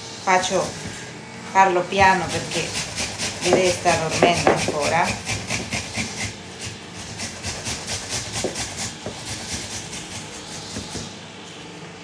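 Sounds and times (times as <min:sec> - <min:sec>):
apple grating on metal grater: 0:01.8 - 0:11.2.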